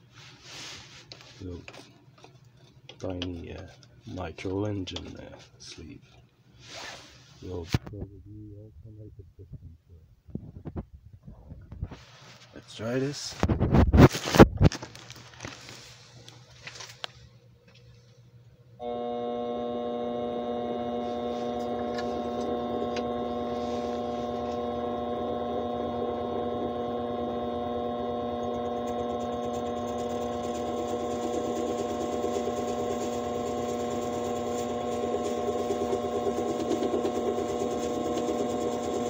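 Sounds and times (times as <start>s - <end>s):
metal lathe motor whine: 18.8s - 39.0s.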